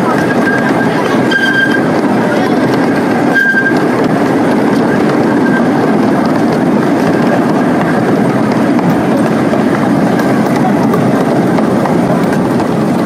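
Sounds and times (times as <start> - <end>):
park train running: 0.0 - 13.0
short high-pitched squeal: 3.3 - 3.8.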